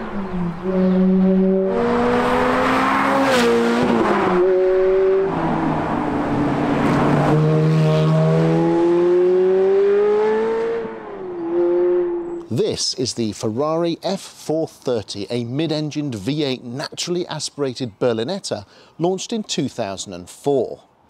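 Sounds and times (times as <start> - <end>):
sports car engine accelerating: 0.0 - 12.4
road and wind noise: 0.0 - 21.0.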